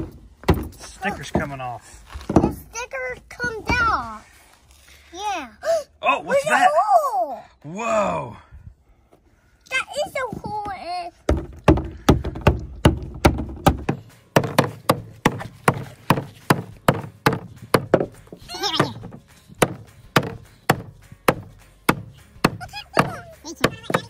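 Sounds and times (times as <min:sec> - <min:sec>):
hammer striking plastic ice pack: 0:19.6 - 0:24.0.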